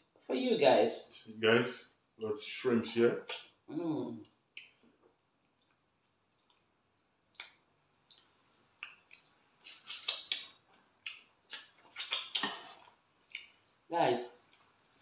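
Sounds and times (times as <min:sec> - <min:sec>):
people chewing with wet smacking: 0:04.5 - 0:15.0.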